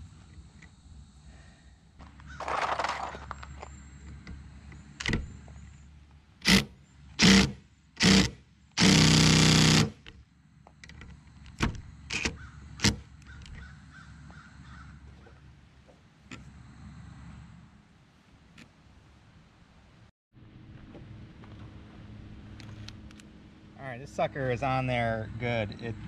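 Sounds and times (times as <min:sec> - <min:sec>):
impact driver hammering: 0:06.4 - 0:10.0.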